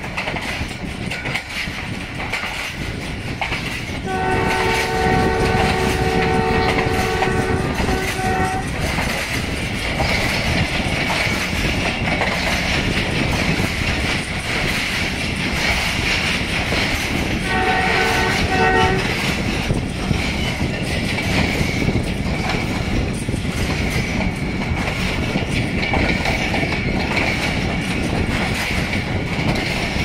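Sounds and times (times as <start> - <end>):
train coaches rumbling on track: 0.0 - 30.0
locomotive horn: 4.0 - 8.9, 17.4 - 19.4.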